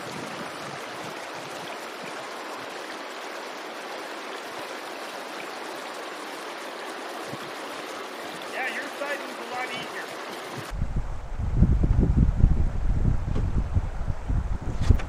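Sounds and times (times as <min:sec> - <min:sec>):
water rushing through sticks: 0:00.0 - 0:10.8.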